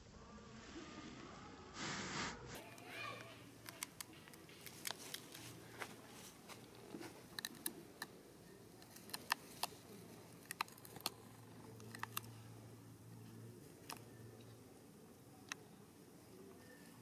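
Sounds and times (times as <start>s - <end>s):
monkey biting and chewing food: 6.7s - 8.2s, 8.8s - 12.4s.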